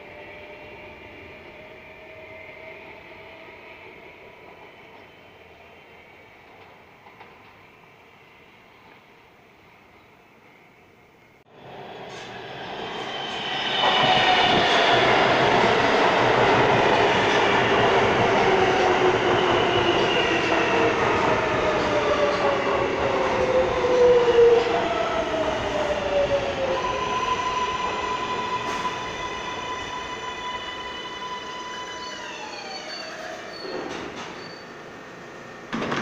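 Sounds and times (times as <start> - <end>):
train braking to a stop: 11.6 - 35.8.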